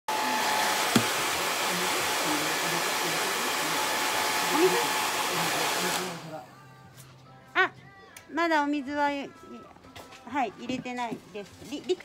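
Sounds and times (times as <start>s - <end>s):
hair dryer blowing: 0.1s - 6.4s.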